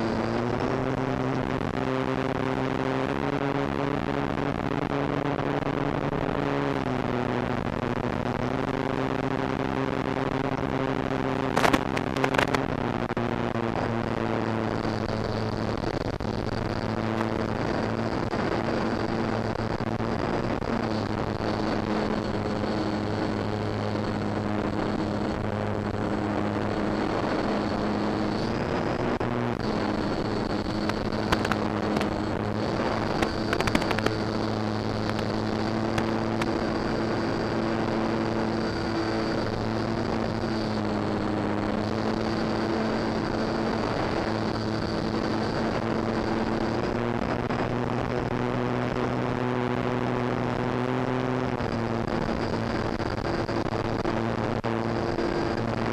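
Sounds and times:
short crackles: 0:04.6 - 0:49.3
wind rush: 0:14.9 - 0:48.0
model plane motor and propeller: 0:16.8 - 0:54.0, 0:54.8 - 0:55.9.

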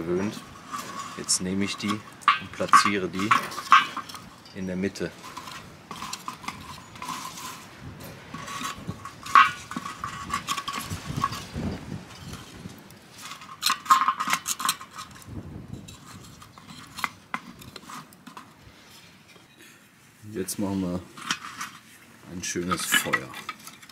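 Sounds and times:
wooden slats knocking and scraping: 0:00.0 - 0:15.3
charcoal clinking and crunching: 0:00.0 - 0:19.8, 0:20.4 - 0:23.9.

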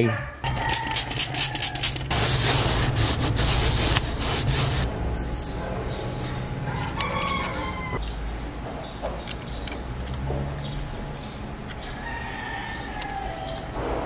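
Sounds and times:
rooster crowing: 0:00.1 - 0:02.0, 0:06.6 - 0:08.0, 0:11.9 - 0:13.7
cloth rubbing plastic: 0:01.1 - 0:04.9.

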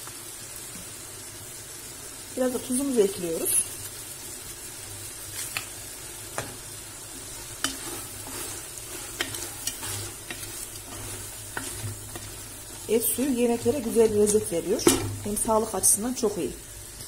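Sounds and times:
vegetables sizzling in a pot: 0:00.0 - 0:17.0
wooden spoon knocking on pot: 0:13.8 - 0:15.5.

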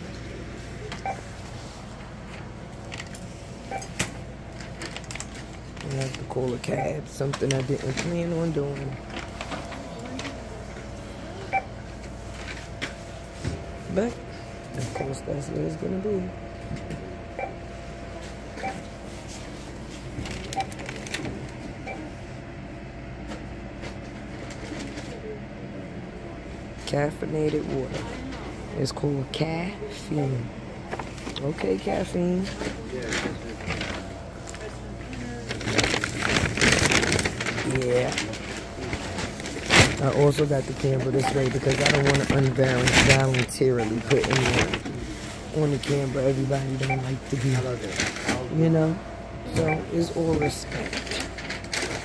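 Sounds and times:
steady store hum: 0:00.0 - 0:52.0
barcode scanner beeps: 0:01.0 - 0:01.3, 0:06.6 - 0:07.2, 0:29.9 - 0:30.4, 0:31.5 - 0:32.2, 0:40.8 - 0:44.6, 0:46.7 - 0:47.6, 0:49.5 - 0:50.9
clicks and rustling: 0:32.5 - 0:40.1.

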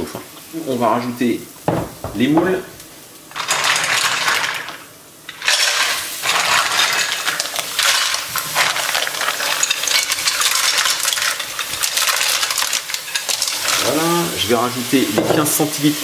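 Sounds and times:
mussel shells clattering in pot: 0:03.3 - 0:14.2.

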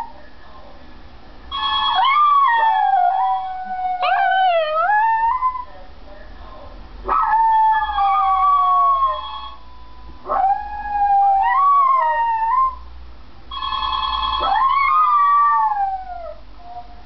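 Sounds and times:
electronic ringing tone: 0:01.5 - 0:02.3, 0:08.9 - 0:10.1, 0:13.5 - 0:14.6
dog howling: 0:02.0 - 0:05.7, 0:07.1 - 0:09.2, 0:10.3 - 0:12.8, 0:14.4 - 0:17.0.

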